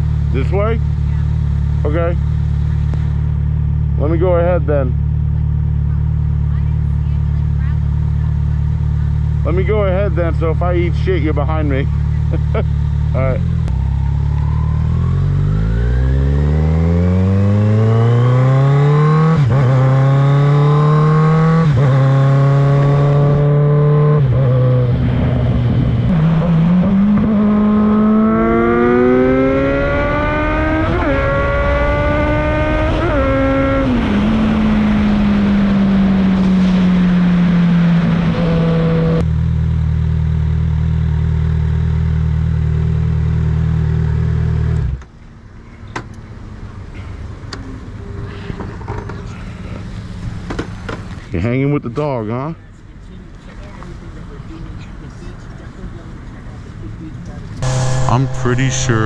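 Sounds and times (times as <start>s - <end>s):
motorcycle engine accelerating: 0.0s - 45.0s, 57.6s - 59.0s.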